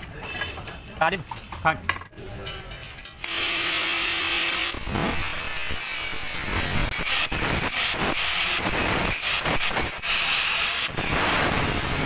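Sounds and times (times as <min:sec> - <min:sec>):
angle grinder grinding steel: 0:03.2 - 0:12.0.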